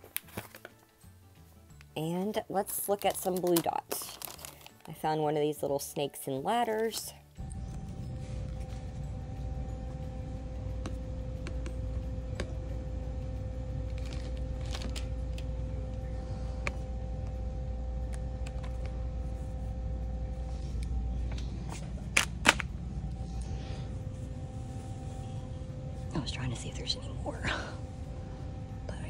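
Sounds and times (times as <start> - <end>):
faint hum: 6.4 - 29.0
low rumble: 7.4 - 29.0.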